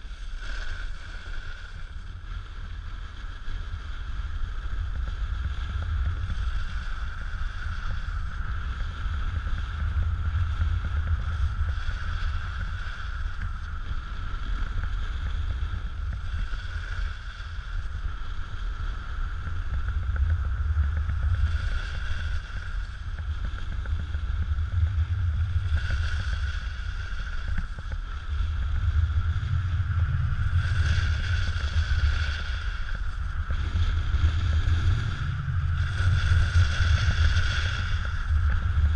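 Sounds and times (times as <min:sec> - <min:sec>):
snowboard hissing over snow: 0:00.0 - 0:38.9
steady high whine: 0:00.0 - 0:38.9
wind buffeting microphone: 0:00.0 - 0:38.9.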